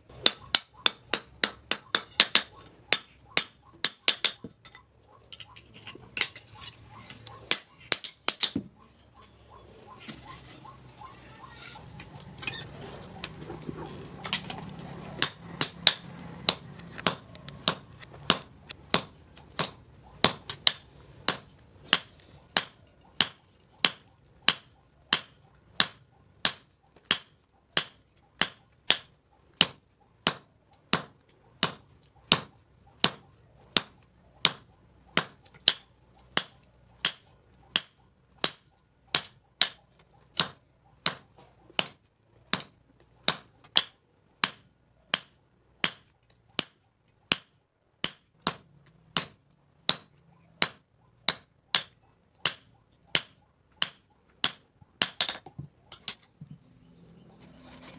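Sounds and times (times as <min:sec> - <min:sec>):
hammer ringing on anvil: 0:19.0 - 0:29.2, 0:35.2 - 0:39.8.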